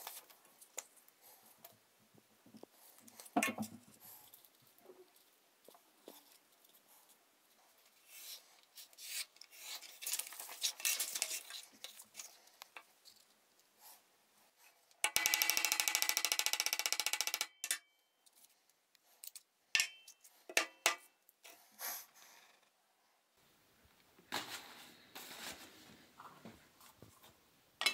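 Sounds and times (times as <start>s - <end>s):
paper rustling: 7.8s - 13.4s, 24.3s - 27.4s.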